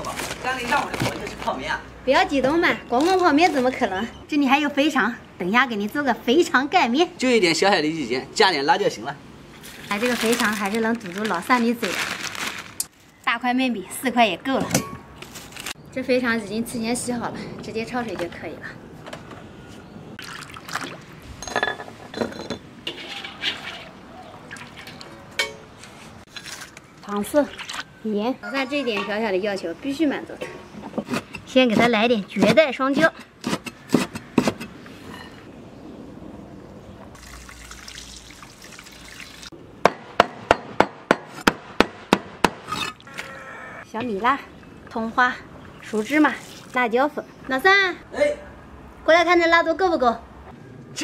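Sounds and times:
water sloshing and pouring: 20.2 - 21.2, 23.2 - 25.4, 26.3 - 28.0, 37.2 - 39.6, 45.7 - 47.0
metal ladle clinking on steel: 24.9 - 25.7.

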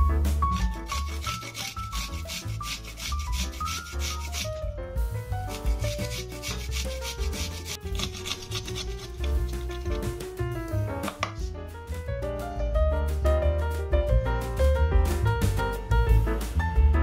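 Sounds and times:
background piano music: 0.0 - 17.0
garlic grated on a metal grater: 0.4 - 4.6, 5.5 - 10.2.

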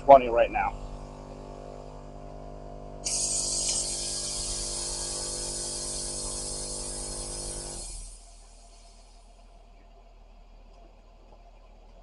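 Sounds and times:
air compressor humming: 0.0 - 12.0
air hissing from hose: 3.0 - 9.3.

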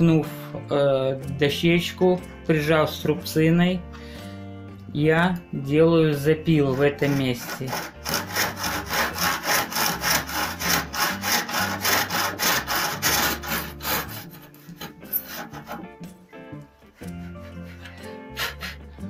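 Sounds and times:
background music: 0.0 - 19.0
hand saw cutting wood: 6.4 - 16.0.

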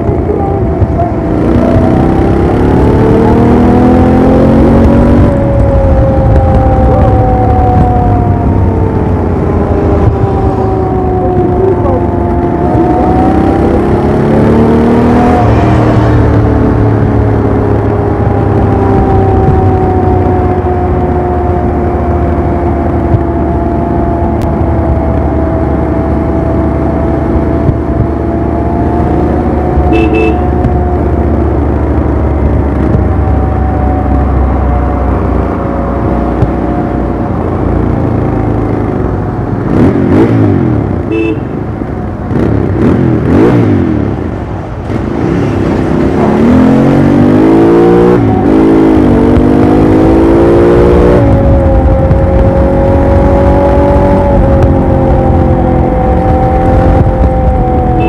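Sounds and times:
motorcycle engine running: 0.0 - 47.2
horn beeps: 29.8 - 30.6, 41.1 - 41.6.

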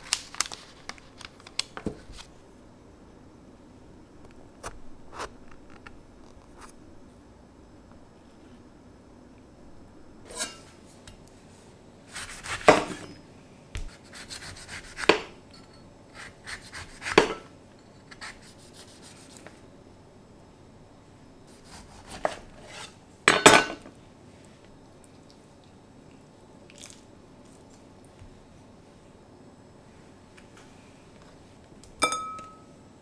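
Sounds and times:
knife slicing grapefruit: 21.5 - 23.0.

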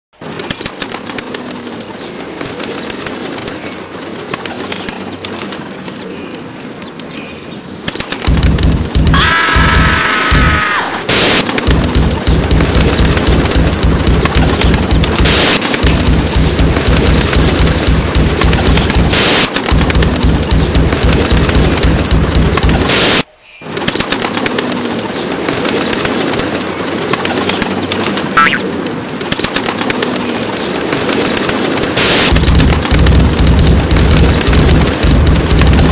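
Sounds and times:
harsh noise bursts: 8.2 - 23.3, 32.0 - 35.9
steady hiss: 15.1 - 19.5
cartoon pigeon cooing: 28.4 - 28.7.

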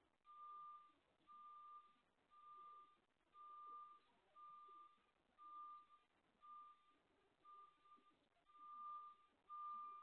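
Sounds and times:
truck reversing alarm beeping: 7.5 - 10.0.

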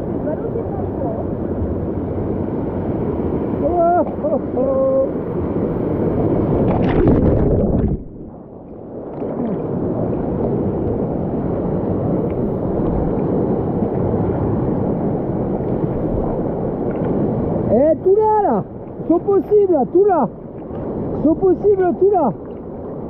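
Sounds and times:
rushing stream water: 0.0 - 23.0
water splashing: 6.0 - 17.7, 18.6 - 23.0.

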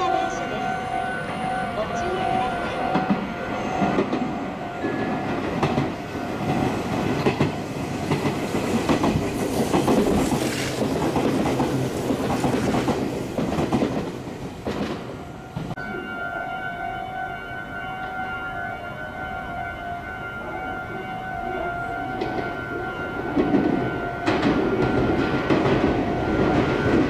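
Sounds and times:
rattling rush of passing train: 0.0 - 27.0
train wheels clacking on rails: 2.0 - 15.8, 22.1 - 27.0.

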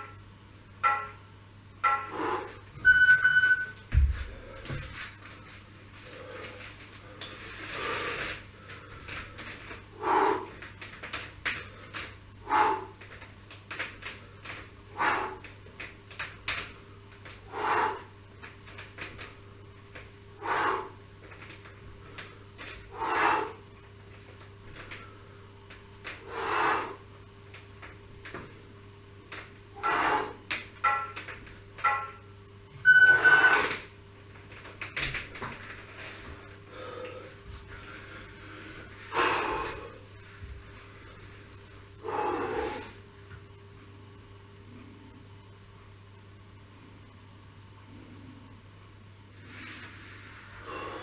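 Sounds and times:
man breathing hard: 2.1 - 2.7, 6.0 - 10.7, 11.6 - 13.0, 14.4 - 15.5, 17.5 - 18.1, 20.4 - 21.0, 22.1 - 23.6, 26.2 - 27.0, 36.6 - 40.1, 50.5 - 51.0.

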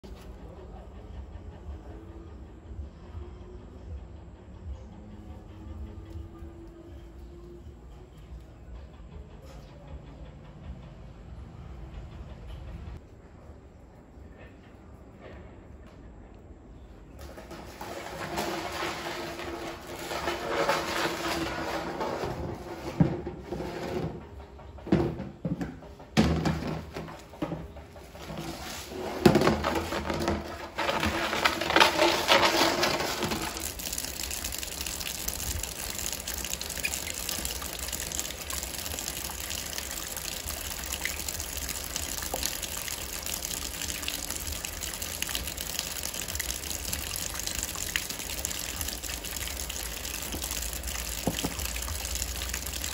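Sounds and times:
water running: 17.2 - 24.1, 26.4 - 52.9.

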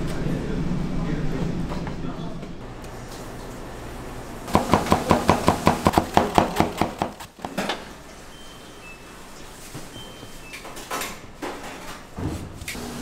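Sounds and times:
rapid strikes on cutting board: 4.5 - 7.5.

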